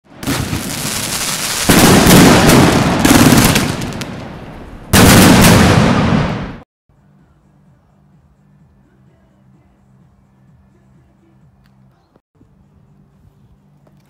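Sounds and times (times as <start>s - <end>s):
fireworks bangs and crackle: 0.1s - 6.6s.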